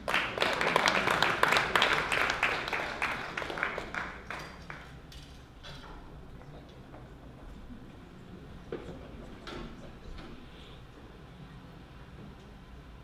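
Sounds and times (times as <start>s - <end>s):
people clapping: 0.0s - 5.4s.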